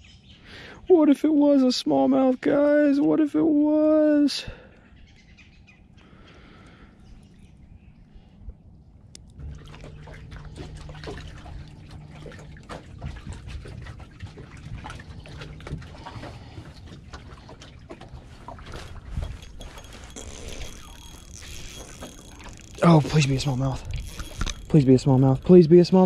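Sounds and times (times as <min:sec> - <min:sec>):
steady low hum: 0:04.6 - 0:26.0
waves lapping against boat hull: 0:09.2 - 0:26.0.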